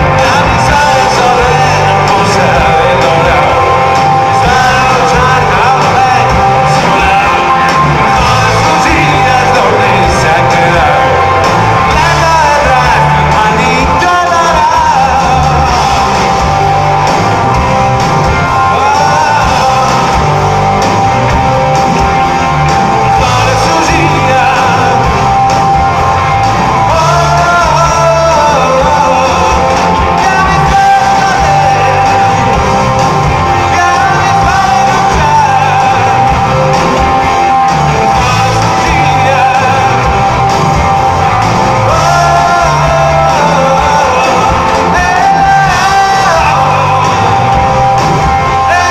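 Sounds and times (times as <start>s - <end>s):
bass: 0.0s - 48.9s
drums: 0.0s - 48.9s
electric guitars: 0.0s - 48.9s
person singing: 0.0s - 48.9s.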